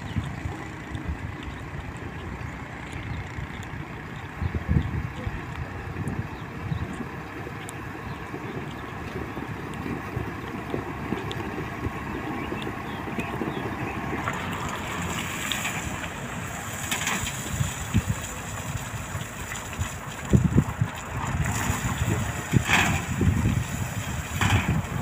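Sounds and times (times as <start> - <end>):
diesel engine running: 0.0 - 25.0
wind rumbling on microphone: 0.0 - 25.0
truck dumping gravel: 5.9 - 25.0.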